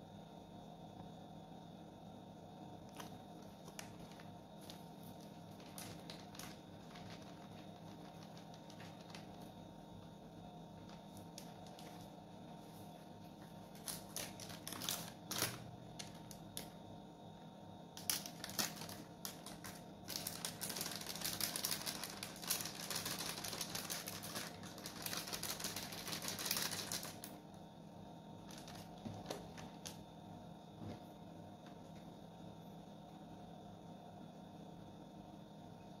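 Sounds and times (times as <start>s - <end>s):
plastic packet crinkling: 2.9s - 9.6s, 10.8s - 12.1s, 13.6s - 16.7s, 18.0s - 27.4s, 28.4s - 30.0s.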